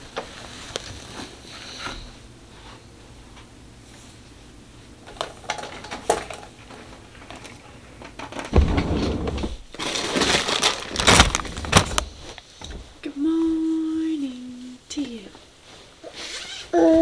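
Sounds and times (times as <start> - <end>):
rustling and crinkling: 0.0 - 2.9, 3.9 - 16.8.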